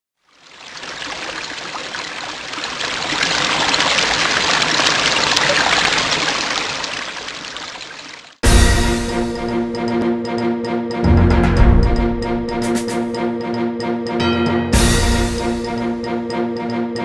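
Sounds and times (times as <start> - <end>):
trickling water: 0.2 - 8.4
music: 8.4 - 17.0.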